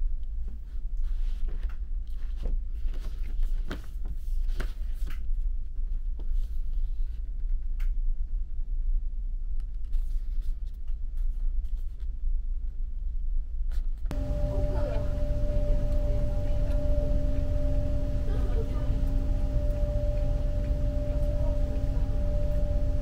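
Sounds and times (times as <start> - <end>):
ferry engine drone: 14.1 - 23.0.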